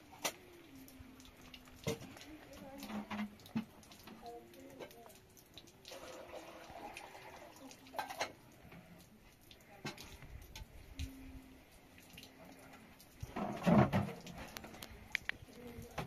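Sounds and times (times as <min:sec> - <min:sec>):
water pouring into kettle: 0:00.0 - 0:10.7.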